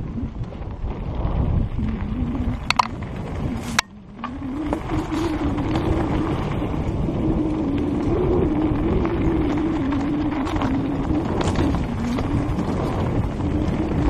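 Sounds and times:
bike tyres rumbling on dirt: 0.0 - 14.0
wind noise: 0.0 - 14.0.

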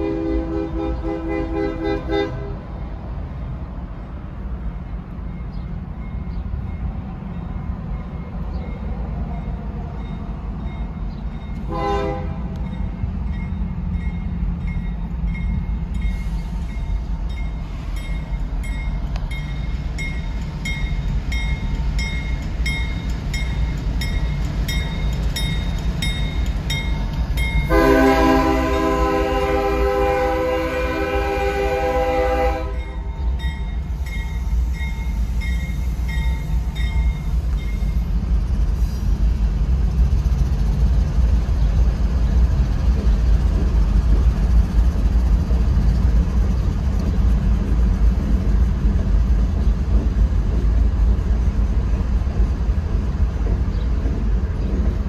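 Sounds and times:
locomotive air horn blasts: 0.0 - 2.8, 11.6 - 12.6, 27.7 - 33.1
crossing bell dinging: 4.8 - 29.4, 32.1 - 38.2.

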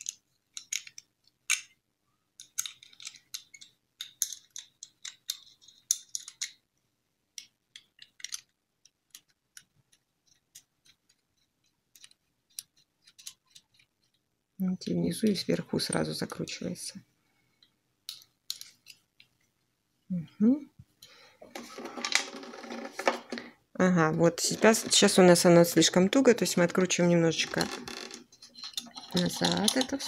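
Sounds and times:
small clicks and scrapes of threads: 7.4 - 14.3.

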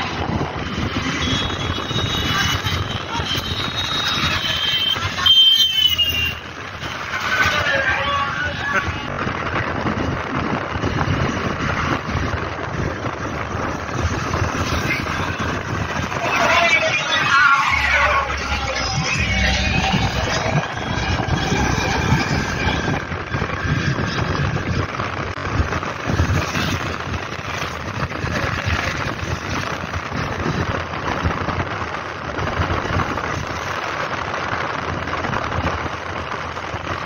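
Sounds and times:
wind buffeting microphone: 0.0 - 5.3, 6.0 - 37.0
vehicle engine and road noise: 0.0 - 37.0.

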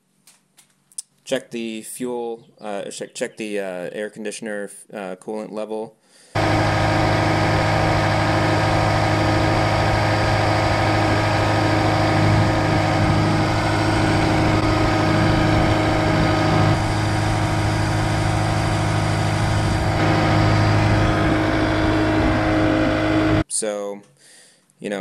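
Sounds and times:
diesel engine idling: 6.4 - 23.4.

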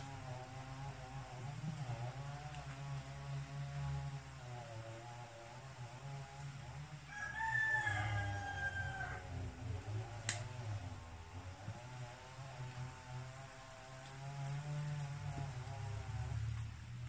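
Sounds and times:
steady low hum: 0.0 - 17.0
rooster crowing: 7.0 - 9.6.

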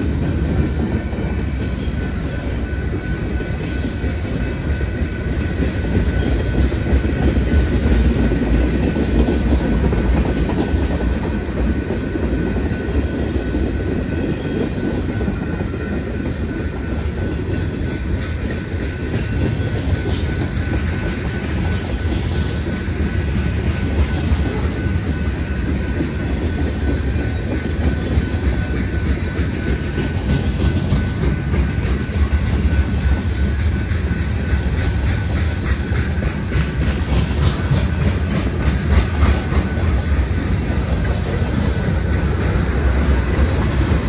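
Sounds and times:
freight train wheels rumbling: 0.0 - 44.0.

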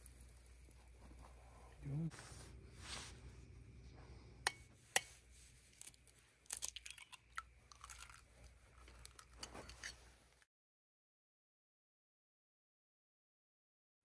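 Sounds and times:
faint low hum: 0.0 - 10.4
metal cookware clinking: 9.2 - 10.0.

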